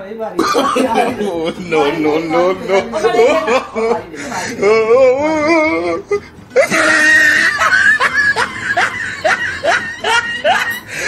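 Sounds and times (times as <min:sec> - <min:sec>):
man wailing: 0:04.6 - 0:10.7.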